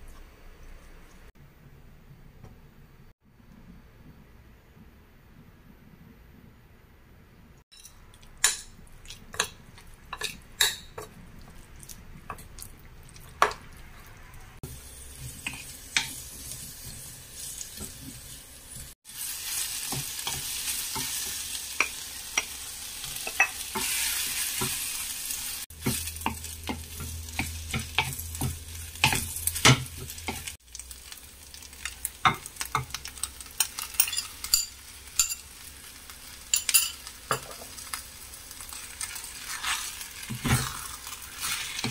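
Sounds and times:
onions and meat sizzling: 13.4s - 41.9s.

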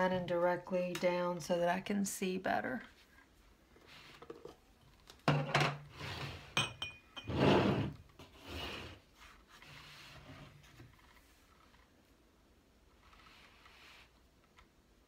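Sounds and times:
glass clinks: 6.6s - 7.4s
rubbing and scraping: 7.3s - 11.9s.

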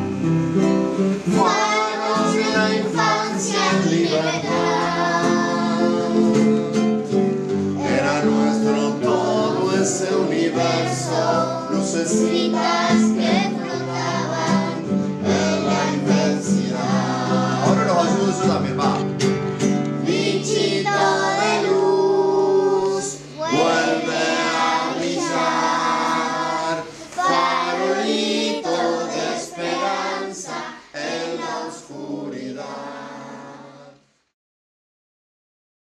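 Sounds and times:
several voices singing: 1.2s - 19.1s, 19.9s - 34.2s.

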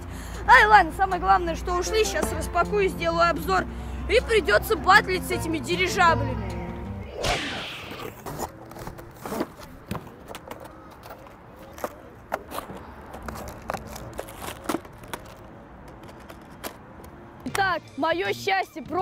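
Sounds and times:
brief rushing sound: 7.1s - 8.2s
packaging rustling and clicking: 8.2s - 17.1s.

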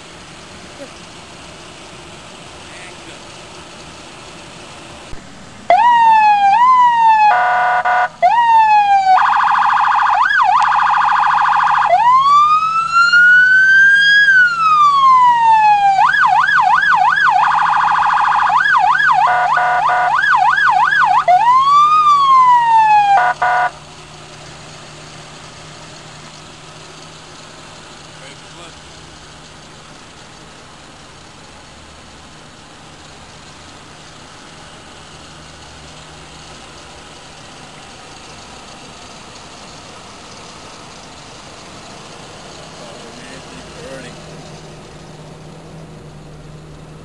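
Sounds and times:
engine idling faintly: 0.0s - 47.0s
electronic siren: 5.7s - 23.8s.

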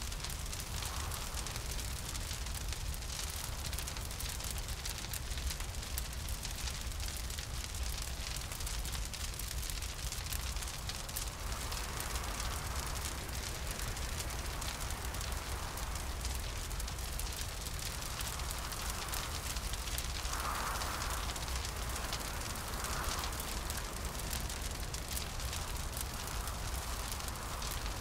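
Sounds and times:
fire crackling and popping: 0.0s - 28.0s
hollow wind: 10.2s - 28.0s.

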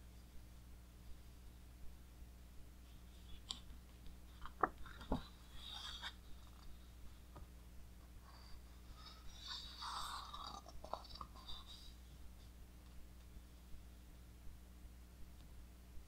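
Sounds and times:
steady low hum: 0.0s - 16.0s
paper rustling: 4.3s - 6.7s.

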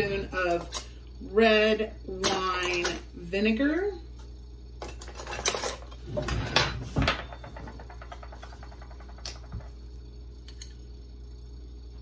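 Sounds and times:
glass bottle knocks and clatters: 6.8s - 9.7s.

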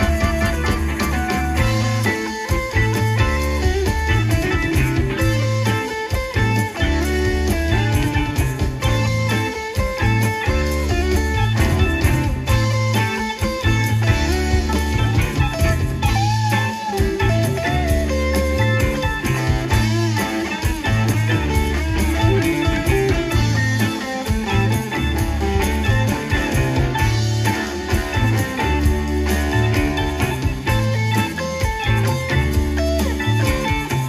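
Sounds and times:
drums: 0.0s - 34.0s
electric guitar lead with bent notes: 0.0s - 34.0s
keyboard: 0.0s - 34.0s
repeating bass line: 0.0s - 34.0s.

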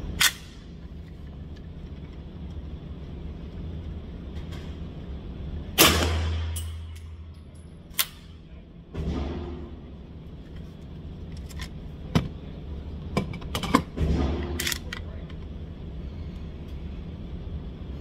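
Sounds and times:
steady hum of shooting range: 0.0s - 18.0s
suppressed pistol shots: 5.8s - 6.7s.

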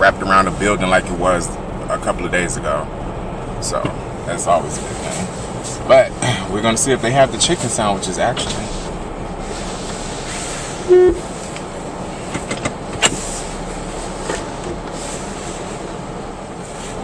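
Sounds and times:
car engine idling: 0.0s - 17.0s
car heater blowing: 0.0s - 17.0s
short loud beep: 10.9s - 11.2s
sharp click: 13.0s - 13.2s.

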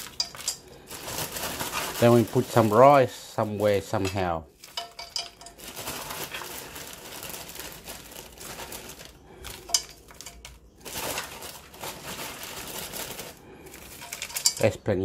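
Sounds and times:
vegetables rustling in a pot: 0.0s - 14.8s.

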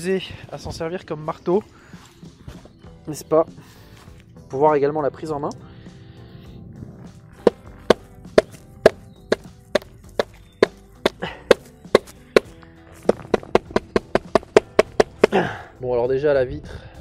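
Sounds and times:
background music: 0.0s - 17.0s
metal bezel knocking on log: 7.4s - 15.4s.

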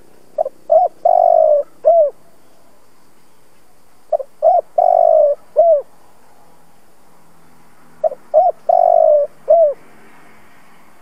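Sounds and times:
dove cooing: 0.0s - 2.8s, 4.1s - 5.9s, 8.0s - 9.8s.

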